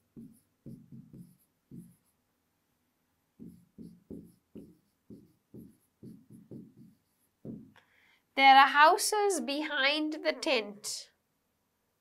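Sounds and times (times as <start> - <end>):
pen strokes on a screen: 0.0 - 2.2, 3.4 - 7.7.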